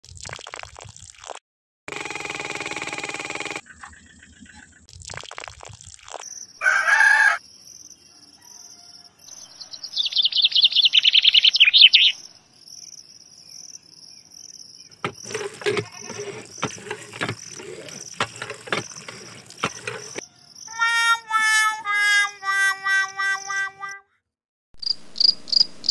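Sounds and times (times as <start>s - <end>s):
birdsong: 8.1s - 13.6s
insect chirping high: 9.9s - 14.8s, 18.8s - 24.0s.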